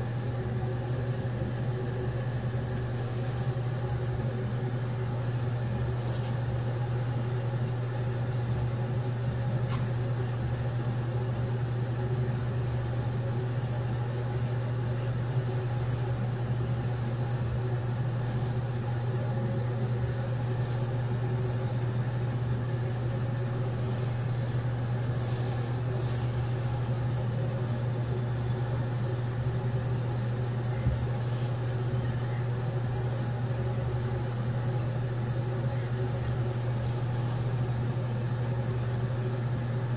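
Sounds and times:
steady low hum: 0.0s - 39.9s.

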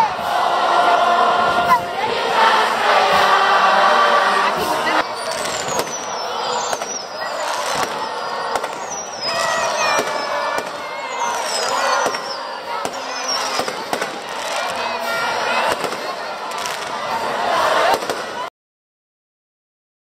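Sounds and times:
crowd singing: 0.0s - 18.5s
fireworks cracking: 4.6s - 18.5s
fireworks whistling: 4.6s - 18.5s.

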